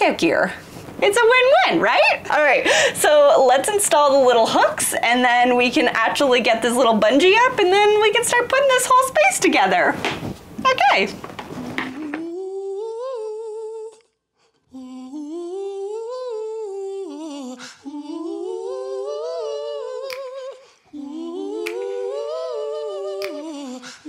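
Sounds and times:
person humming a melody: 11.6 - 14.0, 14.8 - 24.0.

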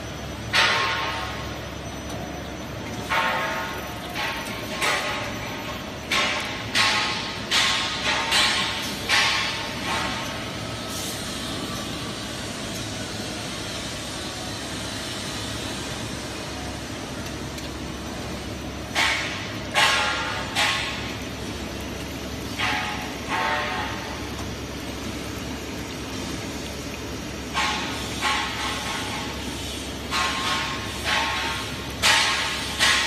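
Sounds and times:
loud ringing knocks: 0.5 - 1.6, 3.0 - 10.5, 18.9 - 21.2, 22.4 - 24.5, 27.5 - 29.3, 30.1 - 33.0.

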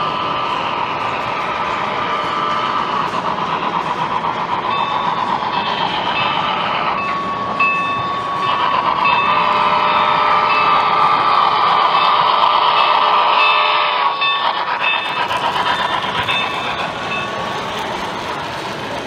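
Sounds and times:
steady whistle tone: 0.0 - 18.0
model steam locomotive running: 0.0 - 19.0.

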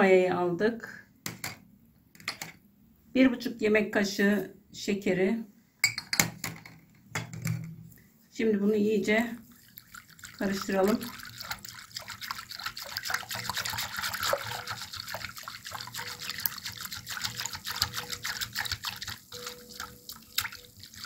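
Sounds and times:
whisk splashing liquid in bowl: 9.1 - 21.0.

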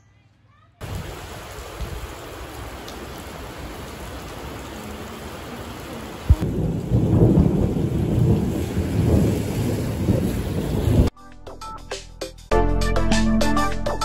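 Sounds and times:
heavy rain pouring: 0.8 - 11.1
thunder crack and rumble: 6.2 - 11.1.

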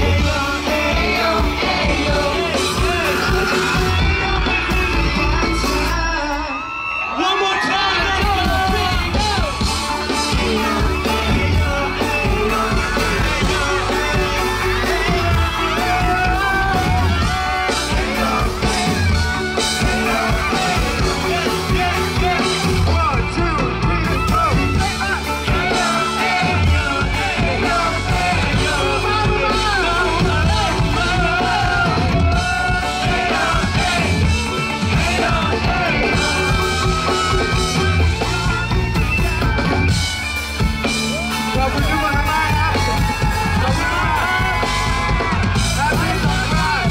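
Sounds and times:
man singing into microphone: 0.0 - 37.5
drums: 0.0 - 46.9
electric guitar: 0.0 - 46.9.

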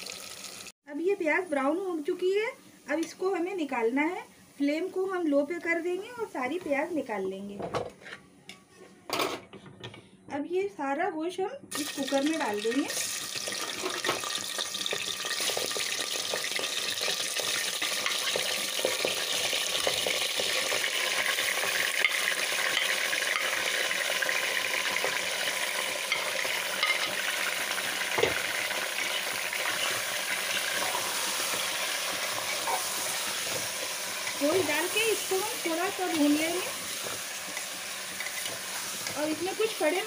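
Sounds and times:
meat sizzling in hot oil: 0.0 - 0.7, 11.7 - 40.0.

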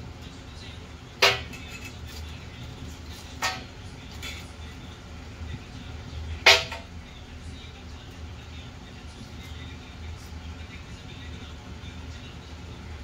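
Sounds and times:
low steady hum: 0.0 - 13.0
sharp clacks in kitchen: 1.2 - 2.0.

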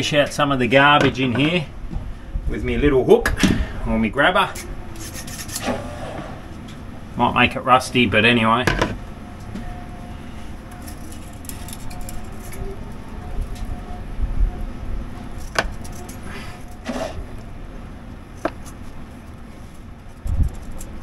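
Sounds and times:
steady low rumble: 0.0 - 5.6, 6.2 - 21.0
handling noises: 8.6 - 14.0, 15.1 - 21.0.

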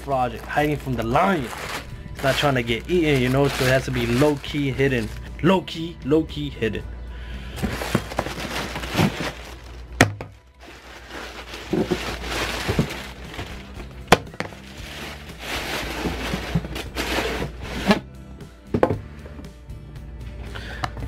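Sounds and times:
tissue paper rustling: 0.3 - 5.3, 7.6 - 10.0, 10.6 - 18.0.

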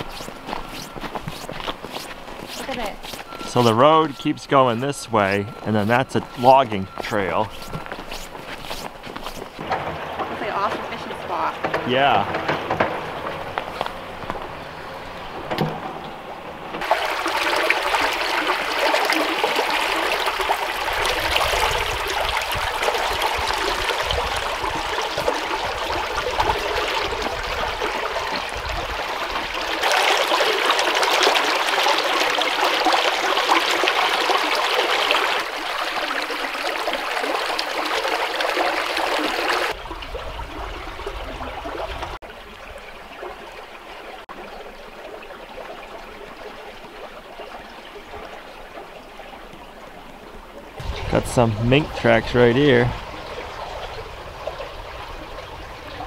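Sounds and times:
brook water trickling: 0.0 - 56.0.

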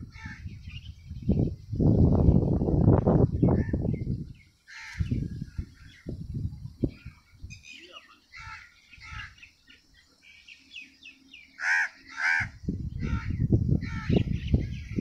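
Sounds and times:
small birds chirping: 0.0 - 15.0
crows cawing: 0.1 - 0.4, 4.7 - 5.2, 8.3 - 9.4, 11.6 - 14.2.

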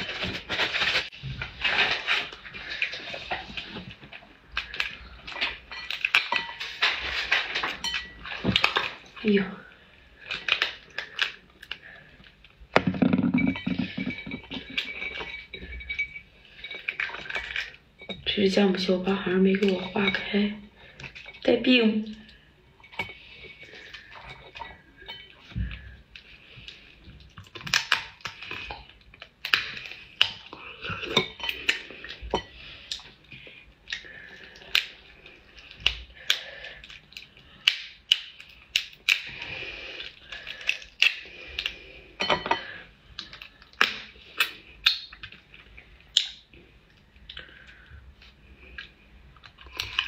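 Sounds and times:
crab shell cracking: 35.8 - 39.4.

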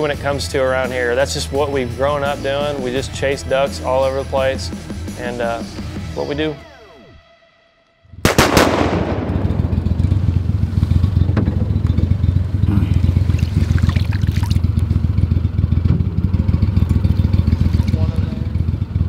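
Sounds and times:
steady low rumble: 8.1 - 19.0
shotgun shot echo: 8.2 - 10.5.

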